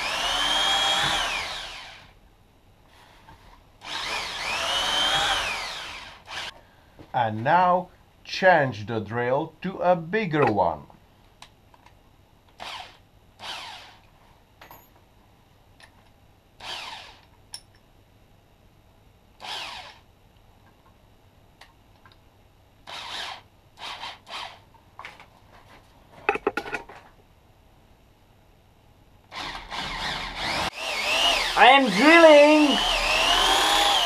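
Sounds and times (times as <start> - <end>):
electric drill whirring: 0.0 - 2.1, 3.8 - 6.5, 12.6 - 14.0, 16.6 - 17.3, 19.4 - 20.0, 22.9 - 24.6, 29.3 - 34.0.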